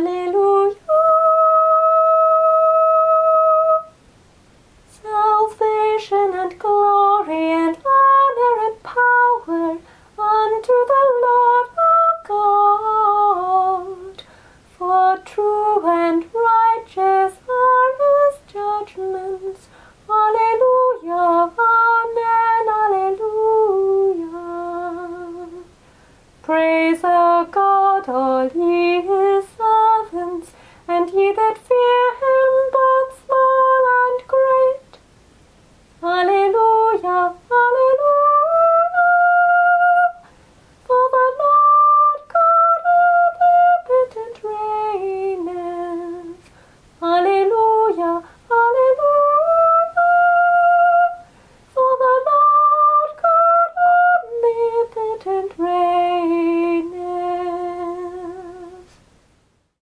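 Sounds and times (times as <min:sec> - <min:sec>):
breaths: 0:09.8 - 0:10.2, 0:14.2 - 0:14.7, 0:19.6 - 0:20.1, 0:25.8 - 0:26.4, 0:30.5 - 0:30.9, 0:40.2 - 0:40.7, 0:46.4 - 0:46.9, 0:48.2 - 0:48.5, 0:51.2 - 0:51.7
woman humming a slow melody: 0:36.0 - 0:40.3.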